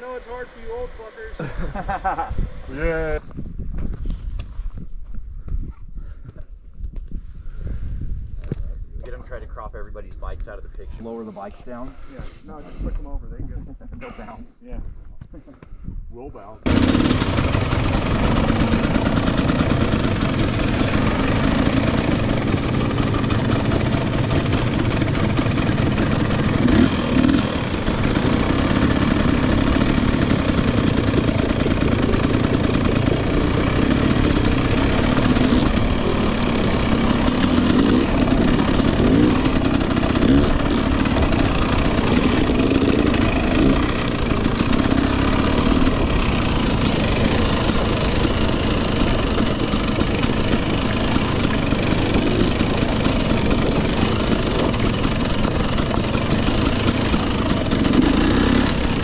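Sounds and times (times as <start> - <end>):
dirt bike engine revving: 16.6 - 59.0.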